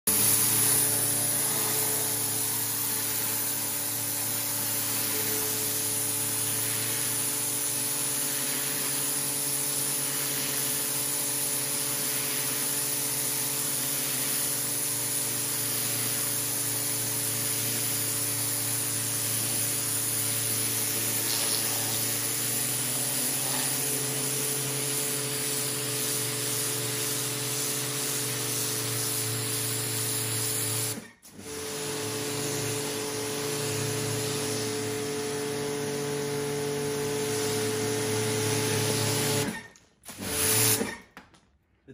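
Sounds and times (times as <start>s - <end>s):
water jet spraying on concrete: 0.1s - 31.0s
pressure washer motor hum: 0.1s - 41.0s.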